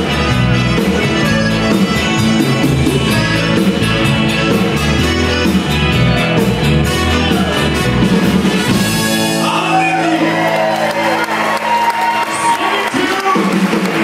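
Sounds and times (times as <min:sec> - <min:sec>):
button accordion: 0:00.0 - 0:07.3
electric bass: 0:00.0 - 0:12.5
drum kit: 0:00.0 - 0:14.0
electric guitar: 0:00.0 - 0:14.0.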